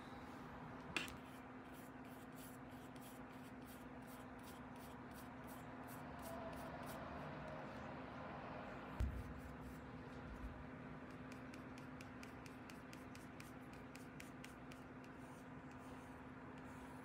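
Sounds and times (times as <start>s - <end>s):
low steady hum: 0.0s - 17.0s
paintbrush scratching on paper: 1.0s - 7.0s, 9.0s - 9.9s, 11.1s - 17.0s.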